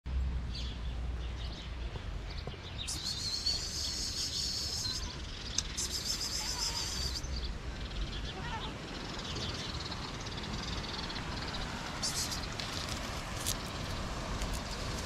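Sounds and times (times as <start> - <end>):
faint bird chirps: 2.3 - 12.6
high buzzing bird trills: 2.8 - 7.4.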